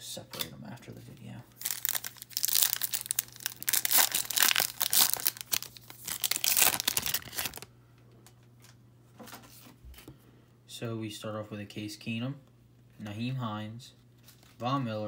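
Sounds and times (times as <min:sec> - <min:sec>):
foil wrapper tearing and crinkling: 0:01.6 - 0:07.7.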